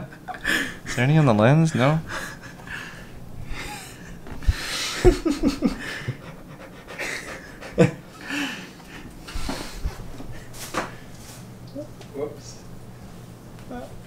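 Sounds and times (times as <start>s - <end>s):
breathy panting laughter: 1.8s - 9.1s.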